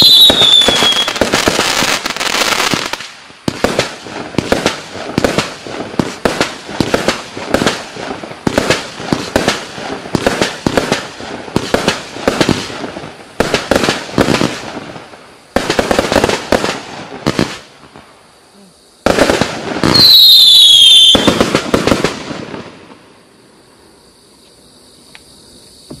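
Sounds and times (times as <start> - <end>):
falling firework whistle: 0.0 - 3.0, 19.8 - 23.1
fireworks firing in volleys: 0.0 - 23.5.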